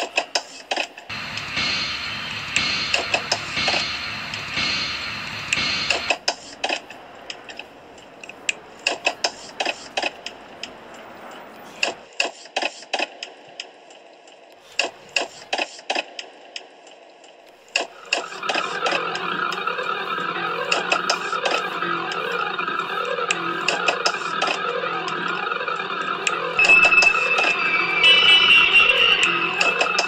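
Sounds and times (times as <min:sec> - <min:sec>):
sharp clicks and knocks: 0:05.5 - 0:13.3
music: 0:26.5 - 0:30.0.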